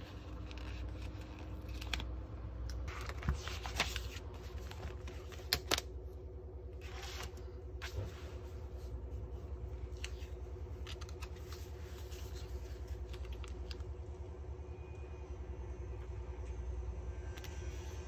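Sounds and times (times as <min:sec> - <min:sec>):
paper stickers peeling and pressing: 0:00.0 - 0:05.9, 0:09.8 - 0:13.9
steady low hum: 0:00.0 - 0:18.0.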